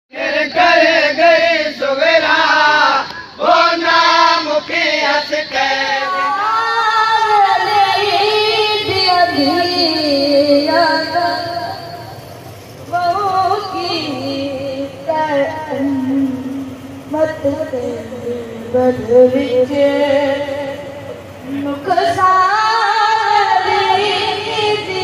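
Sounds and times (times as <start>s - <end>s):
person singing devotional poem: 12.9s - 25.0s.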